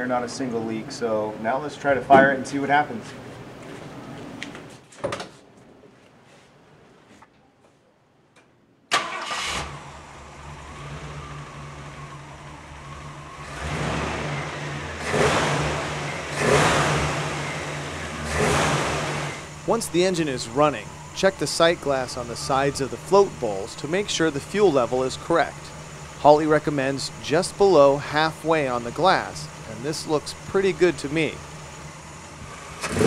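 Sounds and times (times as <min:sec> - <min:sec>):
car engine starting and idling: 0:08.9 - 0:33.0
engine revving: 0:09.0 - 0:33.0.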